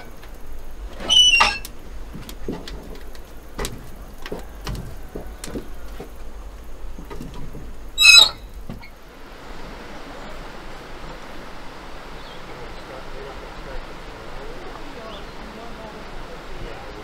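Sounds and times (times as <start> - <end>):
wooden knocks and clunks: 0.0 - 8.9
short high squeal: 1.0 - 1.7, 8.0 - 8.9.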